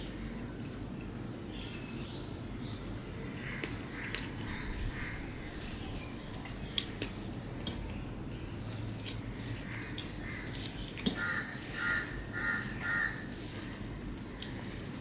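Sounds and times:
bird calling: 9.6s - 13.8s.

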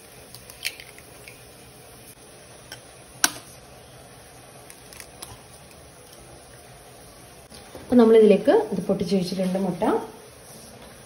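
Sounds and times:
knife cracking eggshells: 0.3s - 1.4s.

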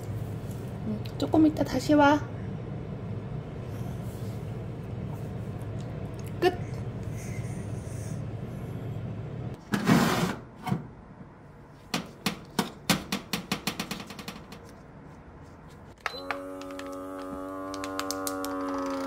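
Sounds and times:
vacuum sealer pump humming: 16.0s - 19.0s.

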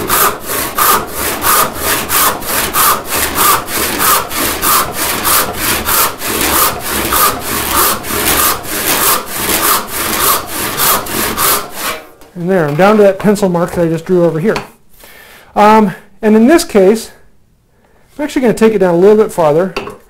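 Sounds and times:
hand saw cutting wood: 0.0s - 12.1s.

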